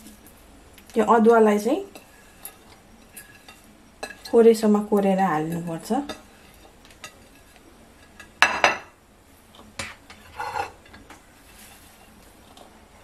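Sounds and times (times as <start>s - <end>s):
plate scraping against bowl: 9.8s - 12.6s.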